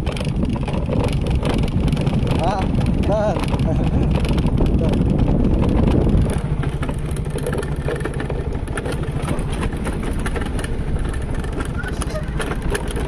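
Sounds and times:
scooter engine running: 0:00.0 - 0:13.0.

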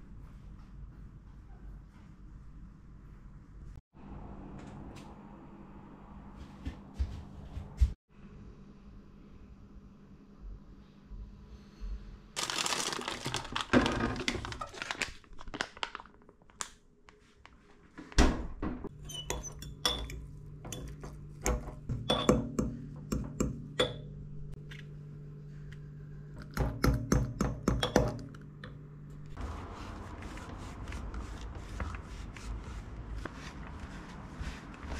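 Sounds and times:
steady low hum: 0:18.9 - 0:34.9
fork clinking against glass jar: 0:19.1 - 0:21.0.

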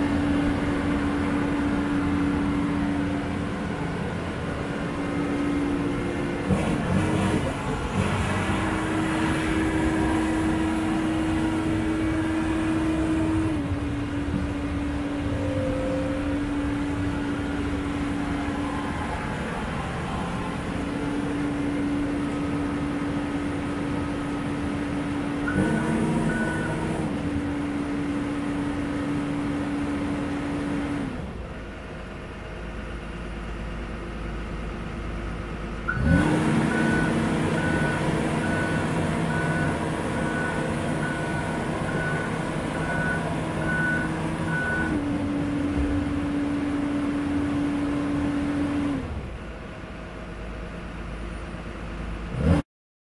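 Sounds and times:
excavator diesel engine: 0:00.0 - 0:52.6
travel alarm beeping: 0:15.1 - 0:17.8, 0:25.5 - 0:26.9, 0:36.7 - 0:45.0.

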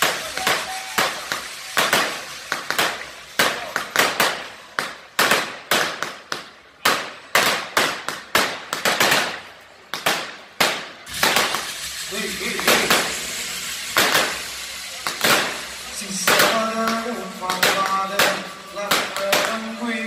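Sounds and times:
firecrackers banging: 0:00.0 - 0:20.0.

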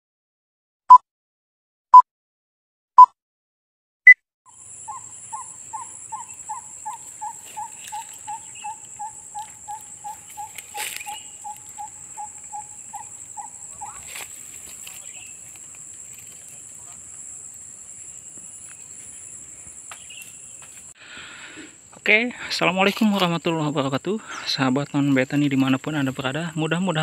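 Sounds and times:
chirping call: 0:04.5 - 0:15.6
high insect trill: 0:04.5 - 0:27.0.

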